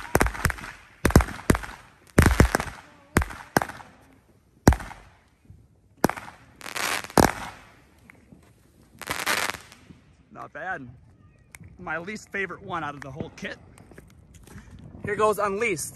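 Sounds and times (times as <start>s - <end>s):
fireworks launching and bursting: 0.0s - 10.1s.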